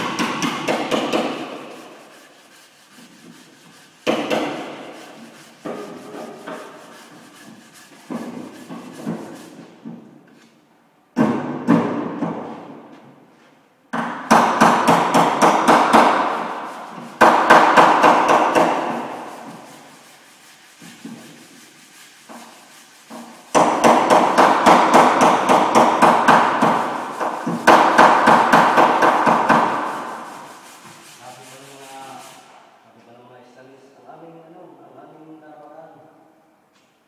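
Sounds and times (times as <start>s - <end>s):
hammer striking steel panel: 0.0s - 1.8s, 4.0s - 5.0s, 14.0s - 16.6s, 17.2s - 19.5s, 23.2s - 30.1s.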